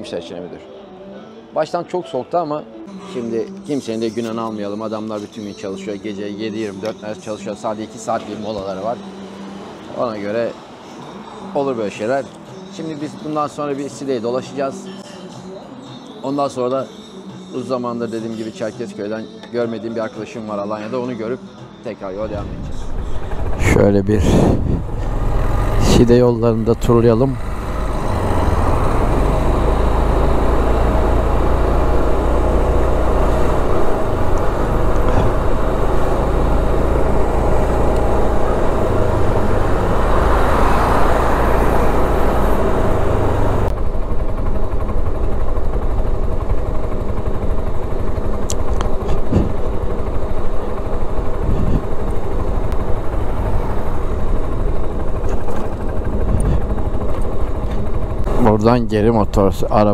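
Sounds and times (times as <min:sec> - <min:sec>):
wind noise: 0:22.2 - 0:25.2, 0:51.1 - 0:53.2, 0:55.8 - 0:58.2
scooter engine running: 0:22.3 - 0:59.9.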